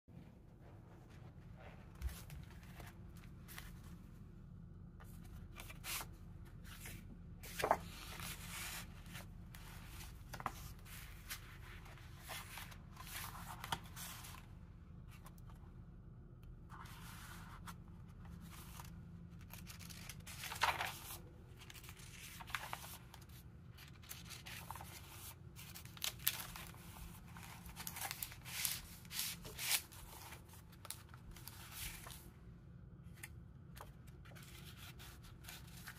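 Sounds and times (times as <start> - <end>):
faint low hum: 0.1 - 35.9
pages flipping: 1.9 - 3.8, 5.0 - 14.4, 16.7 - 32.3, 33.1 - 35.9
paper rustling: 5.0 - 14.4, 16.7 - 32.3, 33.1 - 35.9.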